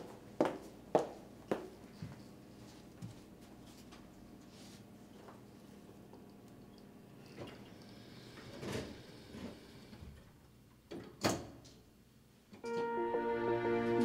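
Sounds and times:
soft music: 12.6s - 14.0s.

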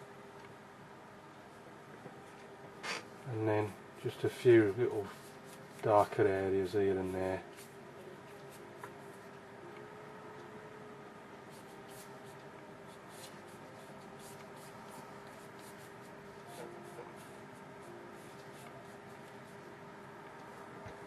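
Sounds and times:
steady low hum: 0.0s - 21.0s
paintbrush strokes on paper: 3.6s - 9.4s, 11.5s - 21.0s.

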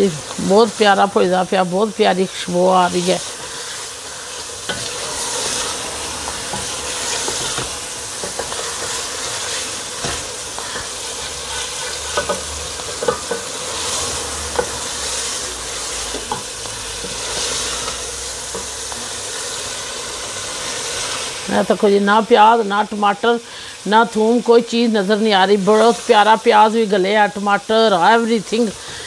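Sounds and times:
curry sizzling in oil: 0.0s - 29.0s.

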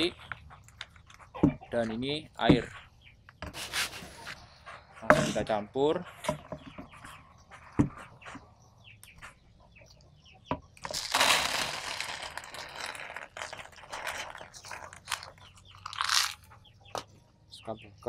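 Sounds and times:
short scrape: 3.6s - 4.4s
sand pouring into plastic tub: 10.9s - 15.3s.

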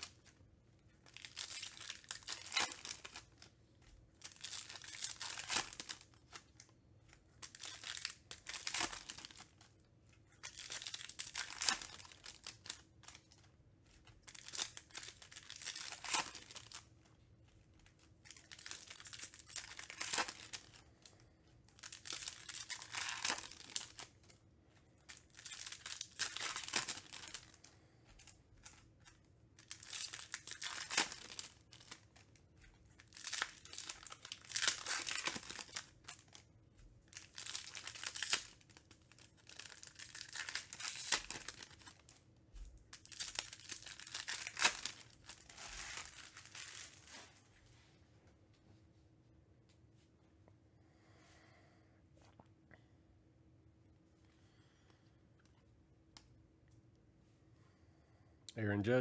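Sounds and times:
foil wrappers tearing and crinkling: 1.1s - 3.5s, 4.2s - 6.6s, 7.4s - 9.7s, 10.4s - 16.9s, 17.9s - 21.2s, 21.8s - 24.4s, 25.1s - 36.5s, 37.1s - 42.2s, 42.9s - 47.3s.

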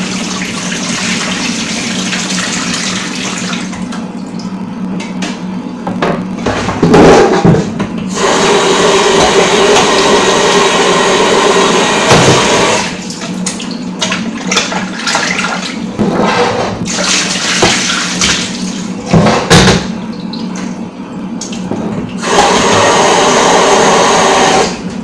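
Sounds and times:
water splashing and sloshing: 0.0s - 4.6s, 12.8s - 22.2s.

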